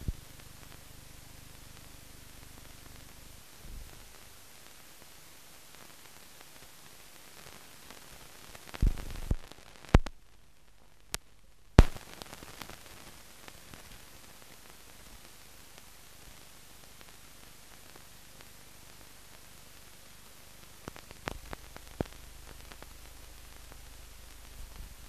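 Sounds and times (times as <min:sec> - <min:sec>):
film soundtrack hiss: 0:00.0 - 0:25.0
sharp clicks and pops: 0:08.5 - 0:14.1, 0:20.8 - 0:25.0.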